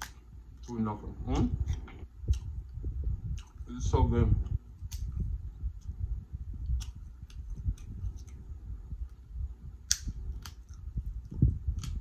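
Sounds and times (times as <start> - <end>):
wet mouth clicks and lip smacks: 1.6 - 3.7, 4.4 - 6.0, 6.6 - 8.4, 9.8 - 12.0
chewing: 1.6 - 3.9, 6.6 - 8.4, 9.9 - 12.0.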